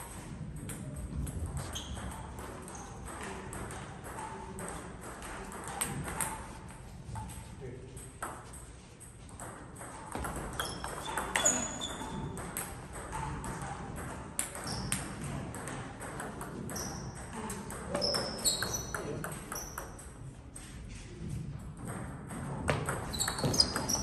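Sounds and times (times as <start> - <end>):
sneakers squeaking on floor: 1.5 - 4.7, 9.9 - 13.8, 14.5 - 15.4, 16.6 - 20.2, 22.8 - 24.0
table tennis ball clicking: 9.4 - 20.1.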